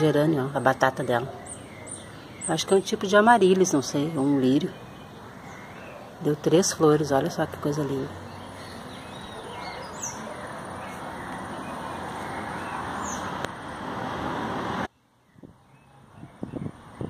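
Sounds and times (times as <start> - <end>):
bird chirping: 0.0 - 13.7
passing vehicle road noise: 7.3 - 15.0.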